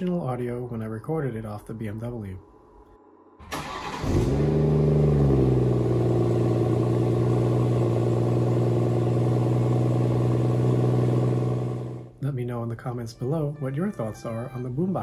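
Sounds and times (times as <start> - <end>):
car engine starting and idling: 3.4 - 12.2.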